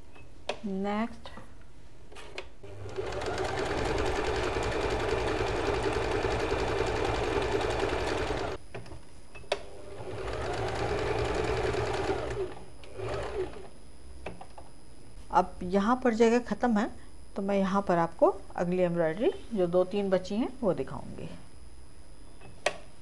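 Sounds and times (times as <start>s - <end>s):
electric sewing machine stitching: 2.6s - 8.6s, 9.7s - 13.7s.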